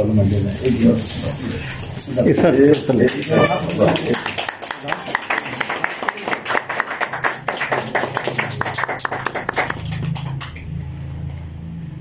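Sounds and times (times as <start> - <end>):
people clapping: 2.3 - 10.7
low steady hum: 7.0 - 12.0.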